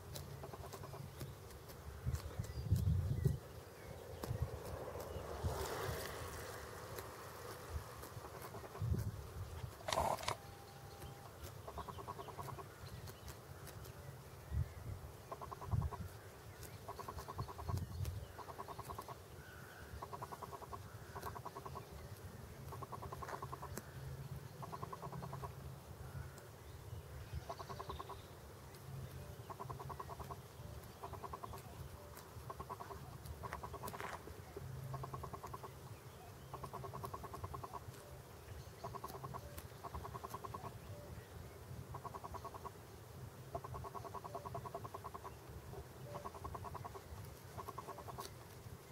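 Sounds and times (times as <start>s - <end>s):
goose grazing rattling bursts: 0.0s - 14.0s, 15.3s - 25.6s, 27.4s - 40.8s, 41.8s - 48.9s.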